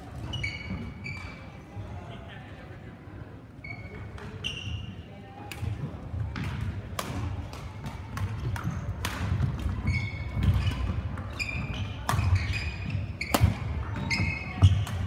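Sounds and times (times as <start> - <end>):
shoes squeaking on court floor: 0.1 - 1.6, 3.6 - 5.1, 9.7 - 15.0
racket striking shuttlecock: 6.4 - 9.7, 12.0 - 15.0.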